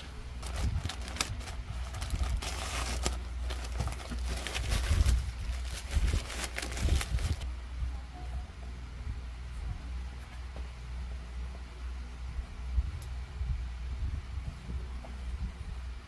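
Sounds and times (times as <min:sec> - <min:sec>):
plastic bag crinkling and rustling: 0:00.0 - 0:07.4.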